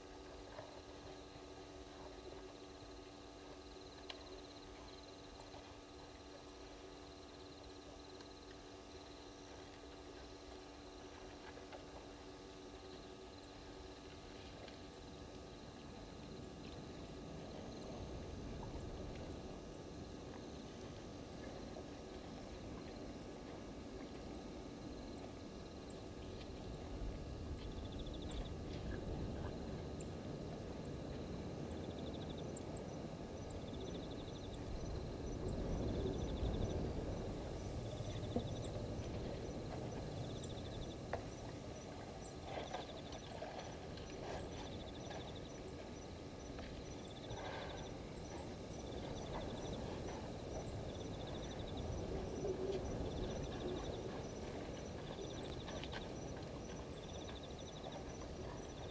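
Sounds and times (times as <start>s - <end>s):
low steady background noise: 0.0s - 58.9s
insects calling: 12.0s - 58.9s.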